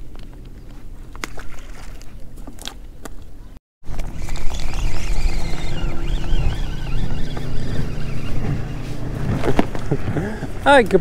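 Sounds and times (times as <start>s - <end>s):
motorboat engine running: 3.8s - 11.0s
wind buffeting microphone: 3.9s - 11.0s.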